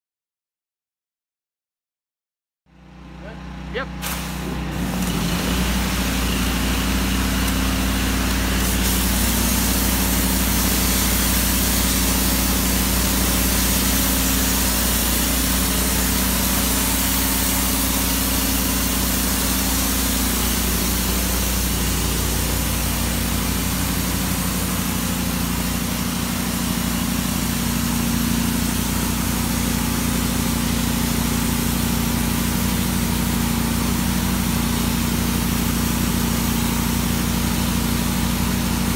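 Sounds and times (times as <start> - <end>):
pressure washer engine drone: 2.7 - 38.9
nozzle hissing spray: 7.4 - 30.0.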